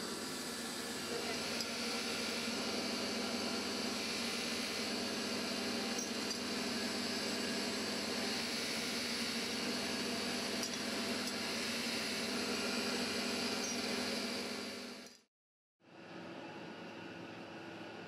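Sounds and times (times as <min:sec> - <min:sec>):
machinery humming: 0:00.0 - 0:15.0.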